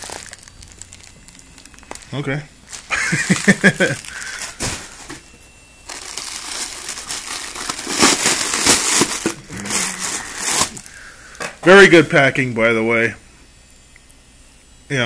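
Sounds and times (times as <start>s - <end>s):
plastic bags crinkling: 0.0s - 11.1s.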